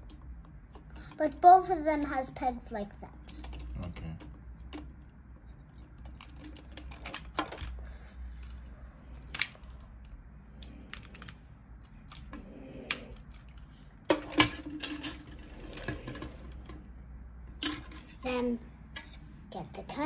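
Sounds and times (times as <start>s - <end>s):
plastic toy parts clicking: 6.0s - 7.8s, 10.6s - 15.2s.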